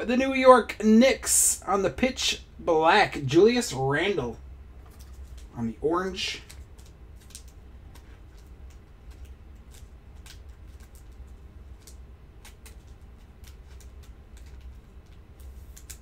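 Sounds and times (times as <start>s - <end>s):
low steady hum: 0.0s - 16.0s
card in plastic sleeve ticking: 6.4s - 16.0s.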